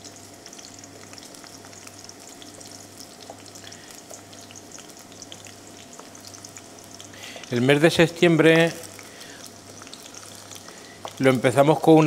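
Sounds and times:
oil sizzling in a frying pan: 0:00.0 - 0:12.0.

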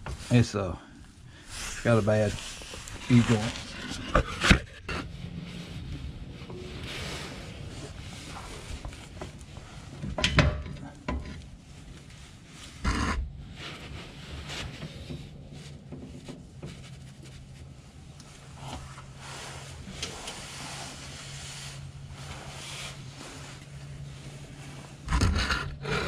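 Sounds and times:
light rubbing and scraping: 0:00.0 - 0:26.0
metal knocks and clatter: 0:10.0 - 0:11.4.

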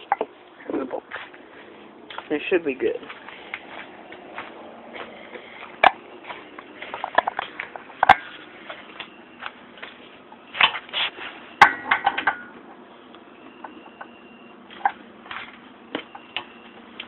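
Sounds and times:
metal ringing: 0:11.5 - 0:12.6.

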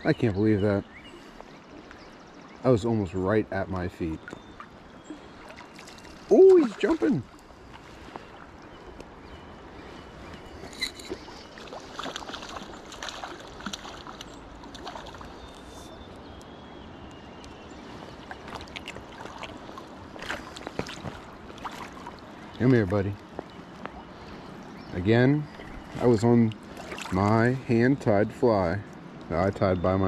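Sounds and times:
river current rushing: 0:05.4 - 0:08.4.

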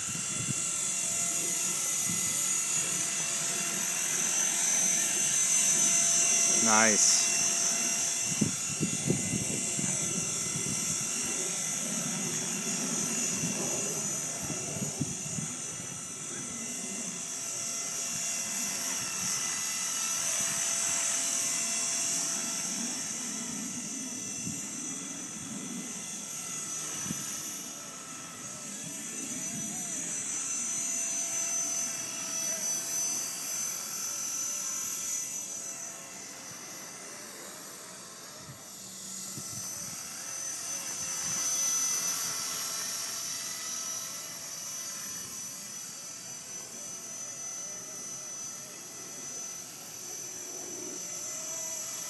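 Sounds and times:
model helicopter whine: 0:00.0 - 0:52.0
wind rumble on microphone: 0:08.2 - 0:11.0.

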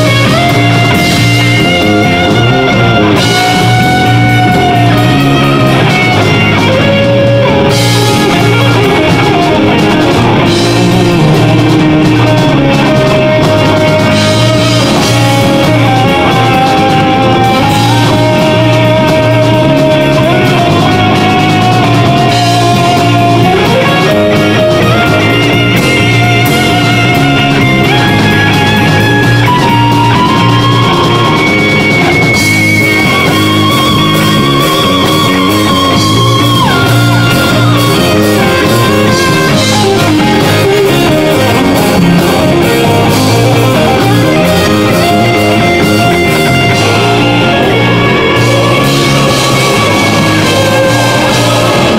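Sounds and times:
lead guitar long held notes: 0:00.0 - 0:51.9
metal band playing: 0:00.0 - 0:51.9.

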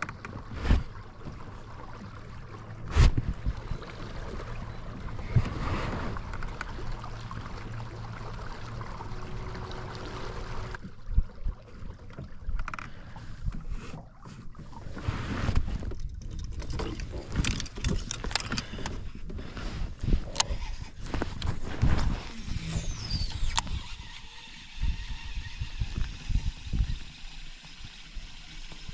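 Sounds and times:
water noise: 0:00.0 - 0:28.9
electric outboard motor humming: 0:01.1 - 0:10.8, 0:20.0 - 0:28.9
fishing gear knocks and clicks: 0:15.8 - 0:19.2.

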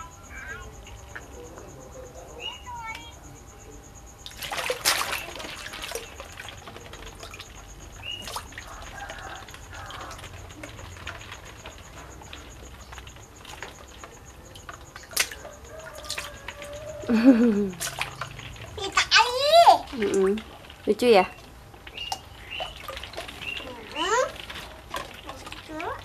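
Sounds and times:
water sloshing and splashing: 0:04.2 - 0:26.0
sharp splash: 0:04.3 - 0:06.6, 0:15.0 - 0:15.4, 0:17.8 - 0:18.2.

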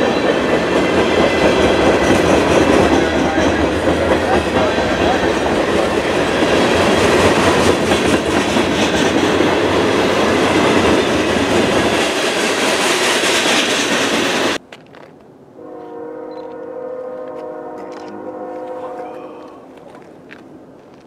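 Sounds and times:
freight train rumbling past: 0:00.0 - 0:14.6, 0:15.5 - 0:21.0
wheels clacking over rail joints: 0:00.0 - 0:15.2.

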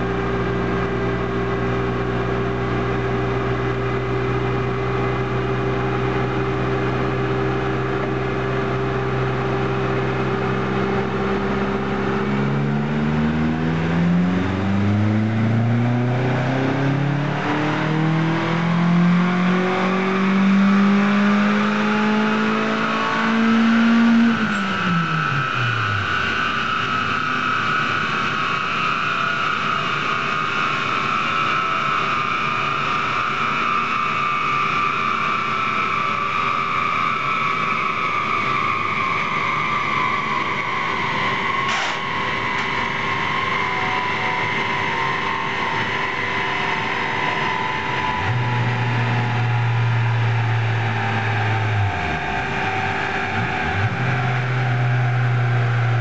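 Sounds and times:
rollers spinning down with whine: 0:00.0 - 0:56.0
turbocharged car engine revving: 0:00.0 - 0:56.0.

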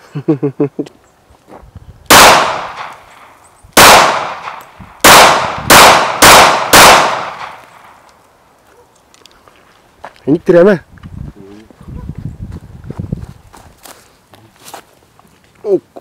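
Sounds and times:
pistol shots with echo: 0:02.1 - 0:08.0.

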